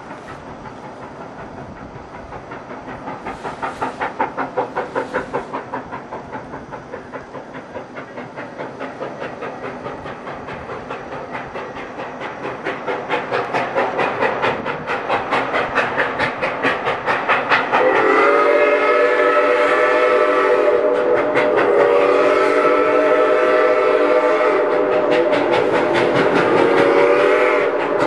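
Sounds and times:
steam locomotive chuffing: 0.0s - 28.0s
steam whistle blast: 17.8s - 25.0s, 26.4s - 28.0s.

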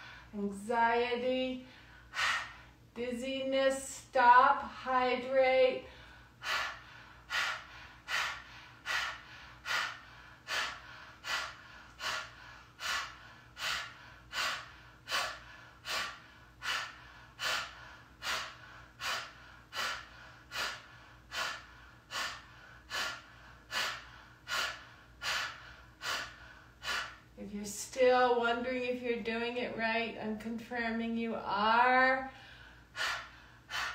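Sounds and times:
woman breathing forcefully: 0.0s - 0.3s, 1.6s - 2.9s, 5.8s - 27.4s, 32.2s - 33.9s.

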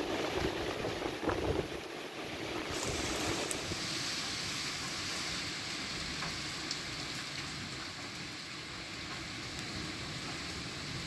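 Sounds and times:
heavy wind-driven rain: 0.0s - 11.0s
raindrops ticking: 4.8s - 11.0s.

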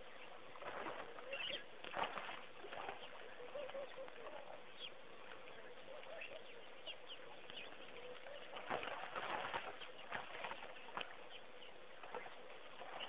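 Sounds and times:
elephant splashing in water: 0.6s - 3.8s, 8.4s - 11.2s.

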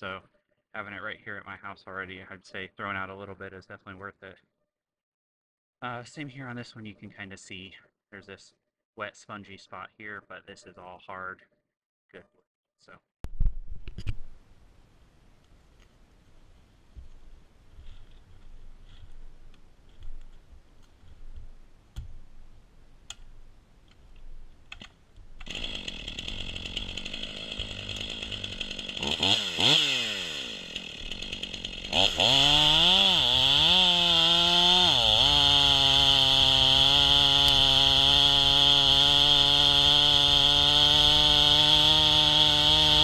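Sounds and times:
chainsaw cutting log: 17.8s - 22.1s, 24.8s - 43.0s
chainsaw running and revving: 25.4s - 43.0s.

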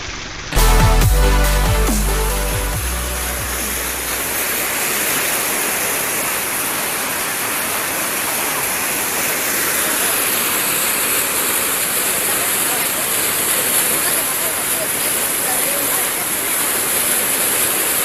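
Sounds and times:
electronic music bass: 0.6s - 4.4s
river rushing in rapids: 2.4s - 18.0s.

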